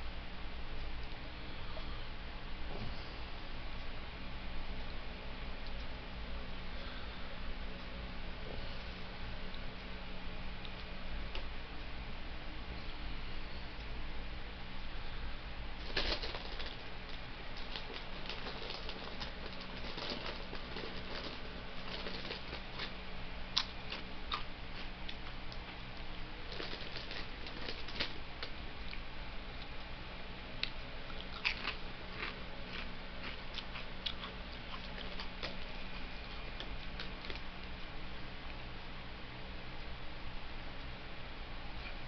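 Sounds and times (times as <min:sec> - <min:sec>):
low steady hum: 0:00.0 - 0:42.0
crunching potato chips: 0:15.8 - 0:25.8, 0:26.4 - 0:29.0, 0:30.6 - 0:37.5.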